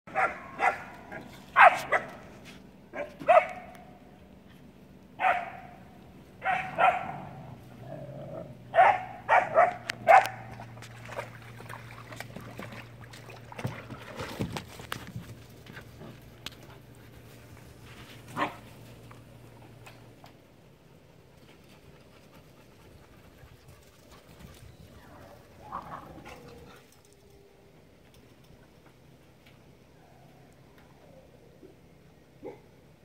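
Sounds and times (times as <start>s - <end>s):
puppies barking: 0.1s - 2.2s, 5.2s - 7.5s, 8.7s - 10.6s.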